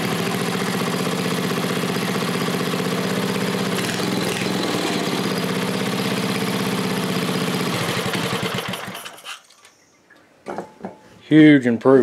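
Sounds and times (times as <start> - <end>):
small engine running and shutting off: 0.0 - 9.4.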